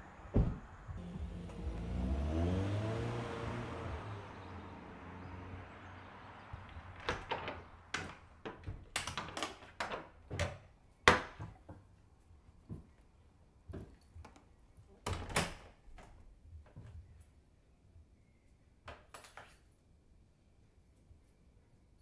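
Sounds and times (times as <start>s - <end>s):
car engine accelerating: 0.0s - 7.0s
door lock clicks and knocks: 15.0s - 15.8s.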